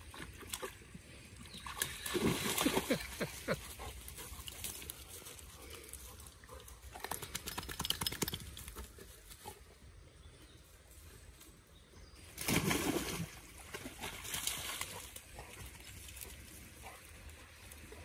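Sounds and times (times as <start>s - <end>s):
dog splashing in stream: 0.0s - 4.8s, 12.2s - 17.9s.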